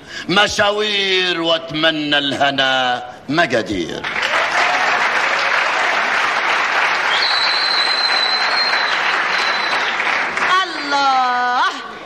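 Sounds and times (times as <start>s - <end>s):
audience applauding: 4.0s - 10.9s
high steady whistle: 7.1s - 10.0s.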